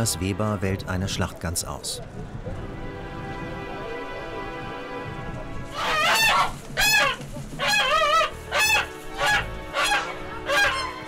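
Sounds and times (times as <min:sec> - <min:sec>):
geese honking: 0:03.4 - 0:11.0.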